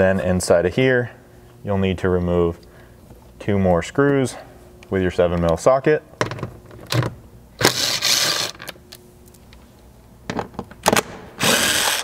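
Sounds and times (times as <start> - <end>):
cordless driver running: 7.6 - 8.6, 11.4 - 12.0.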